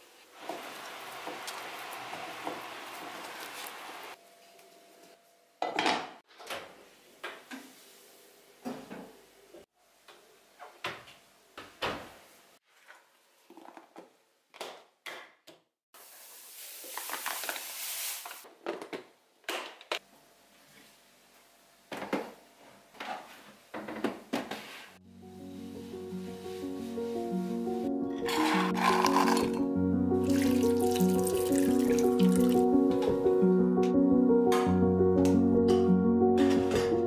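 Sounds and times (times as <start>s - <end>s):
kitchenware knocks and clinks: 5.6s - 6.2s, 28.3s - 29.6s.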